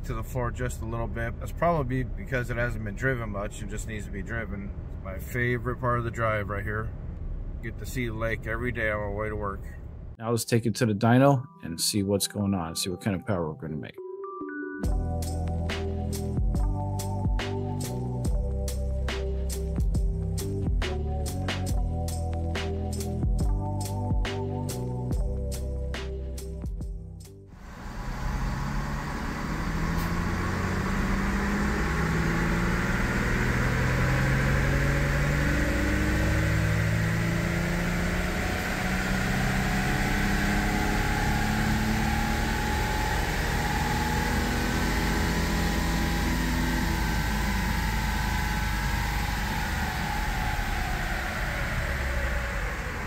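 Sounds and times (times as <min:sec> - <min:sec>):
car engine under load: 0:27.5 - 0:53.0.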